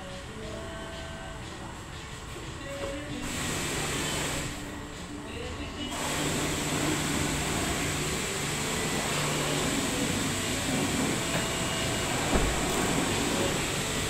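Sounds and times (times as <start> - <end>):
workshop hum and hiss: 0.0 - 14.0
car door shutting: 12.2 - 13.0.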